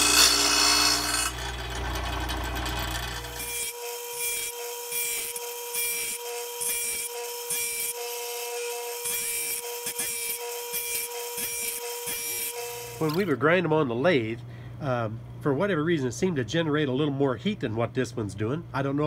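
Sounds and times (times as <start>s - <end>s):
grinding wheel rasping on steel: 0.0s - 13.3s
motor whine: 0.0s - 13.3s.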